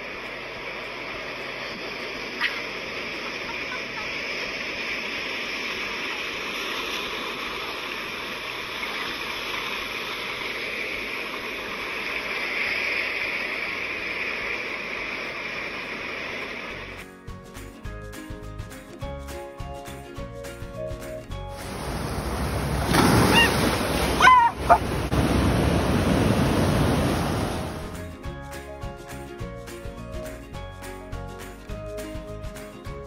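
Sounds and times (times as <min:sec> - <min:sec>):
ocean surf on rocky beach: 0:21.6 - 0:28.0.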